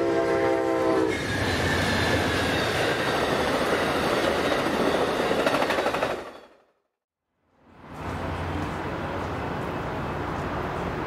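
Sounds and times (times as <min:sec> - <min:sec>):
train horn chord: 0:00.0 - 0:01.1
train rushing past on rails: 0:00.0 - 0:06.7, 0:07.6 - 0:11.0.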